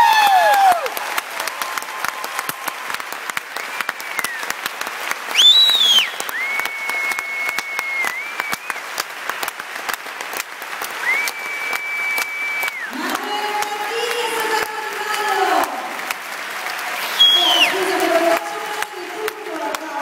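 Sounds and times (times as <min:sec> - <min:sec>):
audience applauding: 0:00.0 - 0:20.0
piercing whistles: 0:05.4 - 0:08.8, 0:11.1 - 0:12.9, 0:17.2 - 0:17.7.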